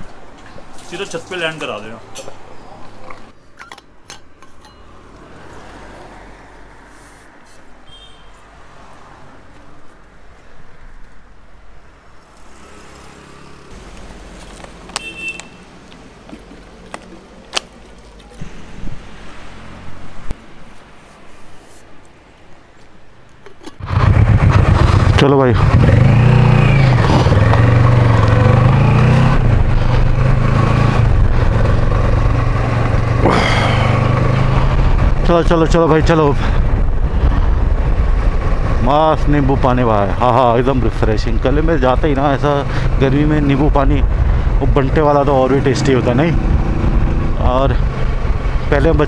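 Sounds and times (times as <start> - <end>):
vehicle engine running: 23.8 - 35.2.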